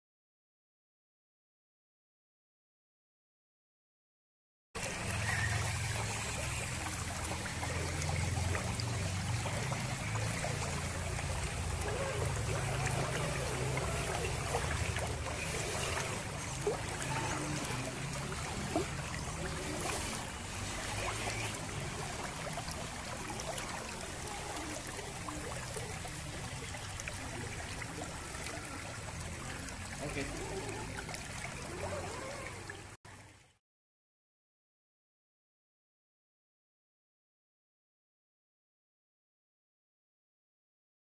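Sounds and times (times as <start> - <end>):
stream rippling: 4.8 - 33.5.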